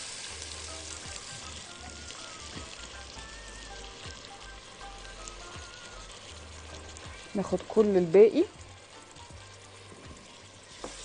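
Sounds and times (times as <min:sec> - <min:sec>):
onions sizzling in ghee: 0:00.0 - 0:11.0.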